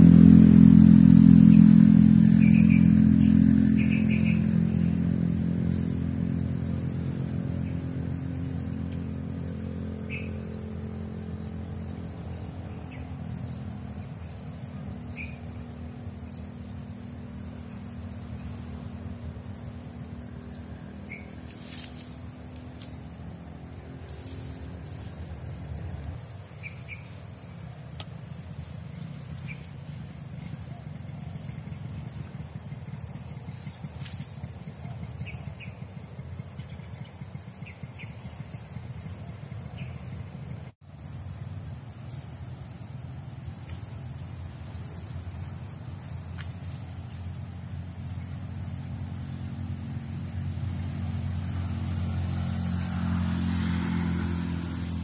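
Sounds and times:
motor vehicle rumble: 0:00.0 - 0:55.0
bird chirps: 0:02.3 - 0:05.0, 0:10.0 - 0:10.9, 0:15.1 - 0:15.6, 0:26.2 - 0:40.3.

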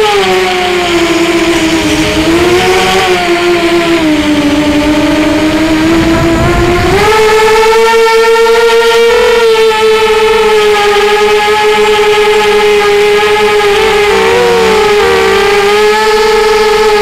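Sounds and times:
quadcopter motors whining: 0:12.1 - 0:17.0.

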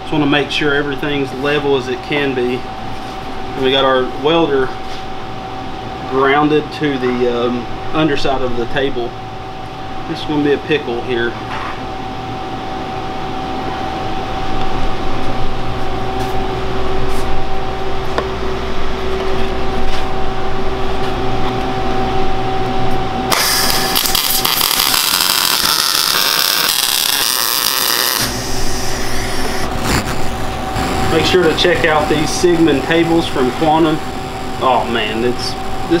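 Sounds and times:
shop hum with steady tones: 0:00.0 - 0:36.0
welder arc crackling and sizzling: 0:23.3 - 0:36.0.

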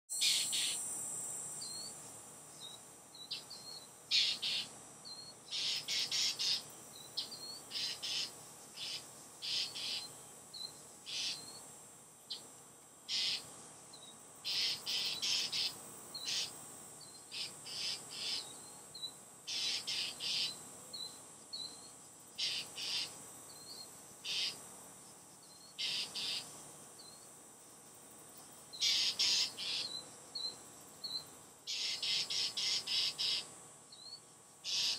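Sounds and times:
steady high hiss: 0:00.1 - 0:34.9
birds giving harsh scold calls: 0:03.4 - 0:04.7, 0:05.5 - 0:10.2, 0:11.1 - 0:11.6, 0:13.1 - 0:13.5, 0:14.4 - 0:16.6, 0:19.5 - 0:20.6, 0:22.4 - 0:23.2, 0:24.2 - 0:24.6, 0:25.8 - 0:26.5, 0:28.8 - 0:30.0, 0:31.7 - 0:33.5, 0:34.7 - 0:34.9.

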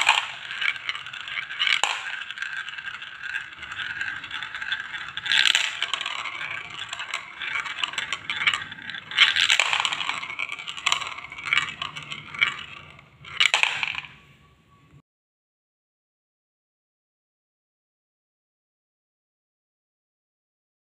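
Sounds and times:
plastic balls clattering onto pile: 0:00.0 - 0:14.2
plastic balls rattling in marble run: 0:00.0 - 0:14.2.

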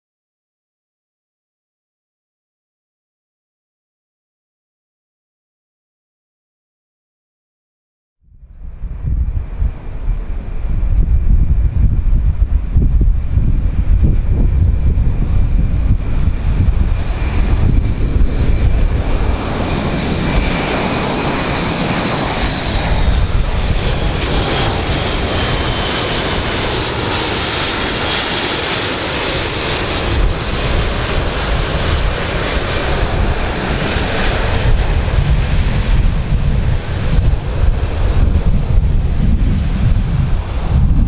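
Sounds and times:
turboprop engines droning: 0:08.3 - 0:41.0.

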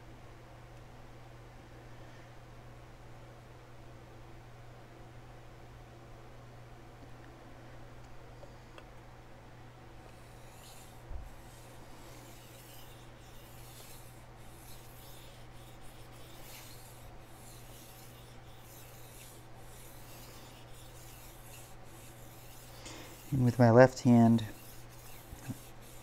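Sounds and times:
knife scraping on whetstone: 0:10.1 - 0:26.0.

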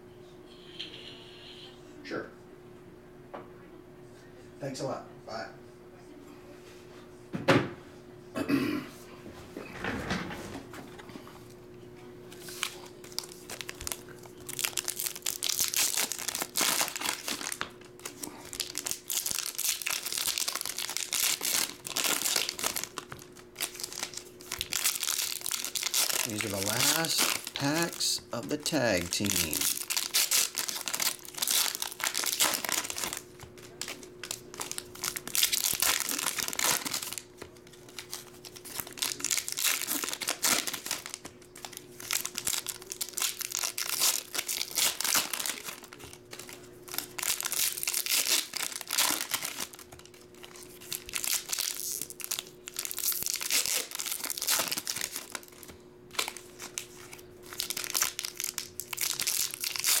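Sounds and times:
foil wrappers tearing and crinkling: 0:12.4 - 1:00.0.

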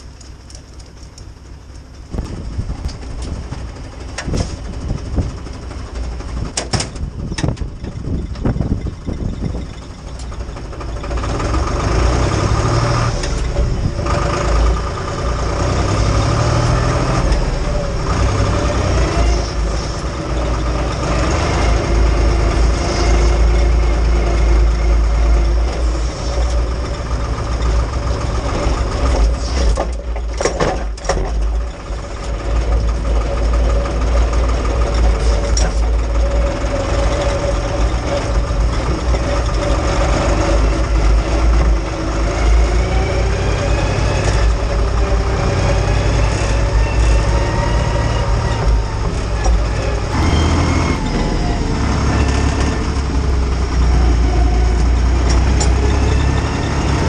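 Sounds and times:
tractor diesel engine running: 0:00.0 - 0:57.0
sharp knocks and clatters: 0:06.0 - 0:08.5, 0:28.9 - 0:36.0.

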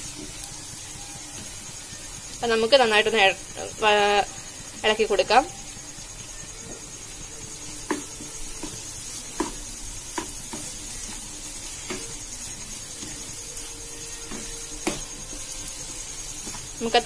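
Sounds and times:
food sizzling in a pan: 0:00.0 - 0:17.0
spatula scraping a pan: 0:07.8 - 0:17.0.

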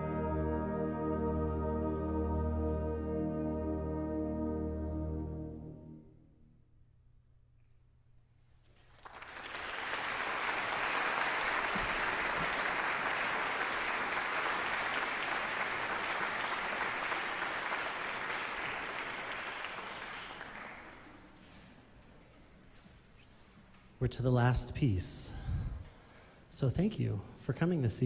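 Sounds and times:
audience applauding: 0:08.8 - 0:21.4.

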